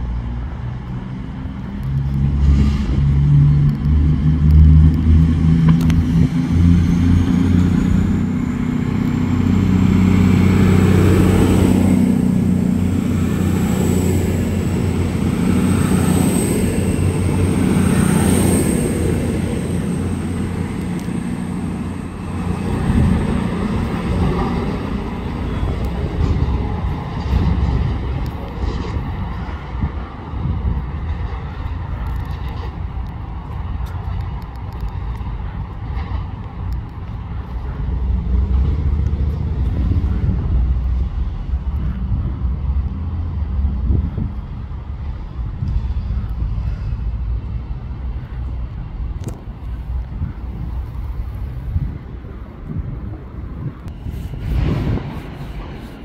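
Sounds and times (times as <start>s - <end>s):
train rumbling past: 0.0s - 56.0s
high whine: 2.3s - 30.2s.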